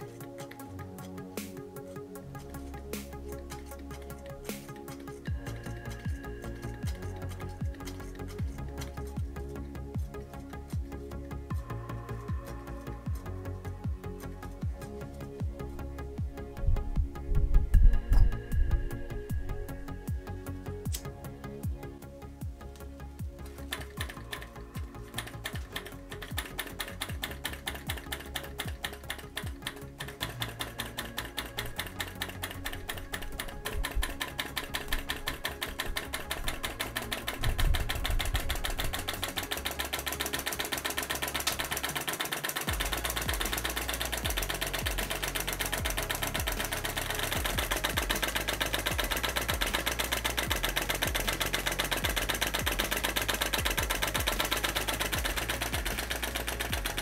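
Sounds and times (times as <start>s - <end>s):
background music with bass: 0.0s - 57.0s
model engine clicking: 2.4s - 11.2s, 22.8s - 57.0s.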